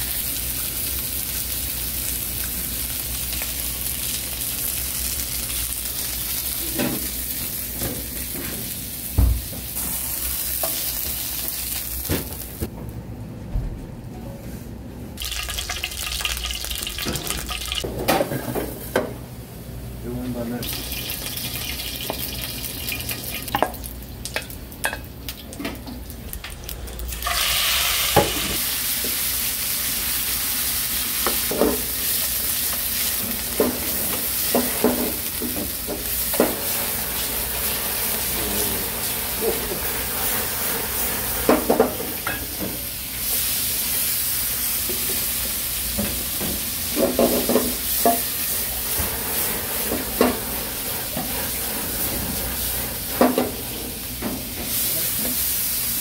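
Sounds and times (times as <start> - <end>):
food sizzling in a pan: 0.0 - 12.7, 15.2 - 17.8, 20.6 - 25.0, 26.4 - 56.0.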